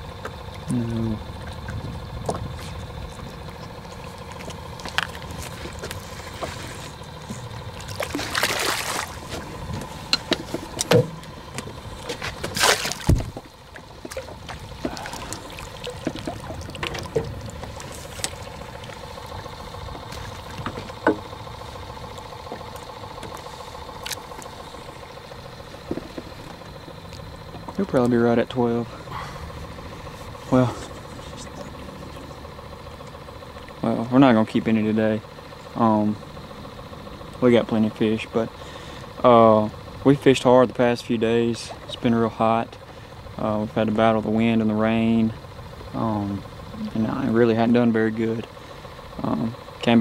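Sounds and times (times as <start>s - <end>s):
faint steady hum: 0.0s - 50.0s
water splashing and trickling: 0.2s - 26.4s.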